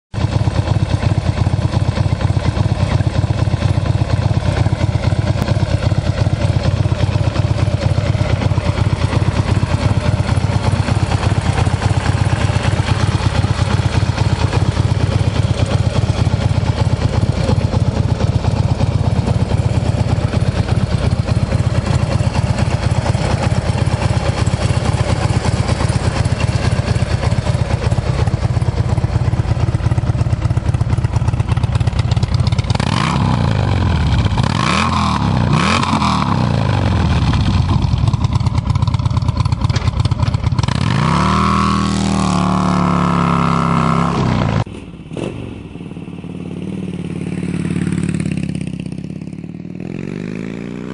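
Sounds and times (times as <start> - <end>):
motorcycle engine idling: 0.2 - 50.9.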